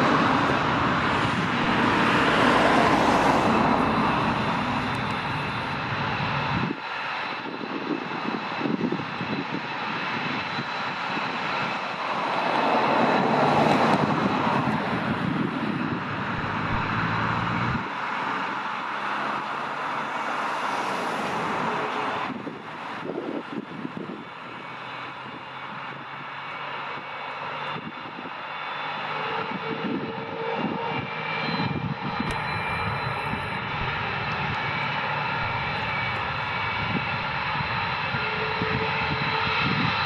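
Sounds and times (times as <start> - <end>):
jet engine roar with whine: 0.0 - 40.0.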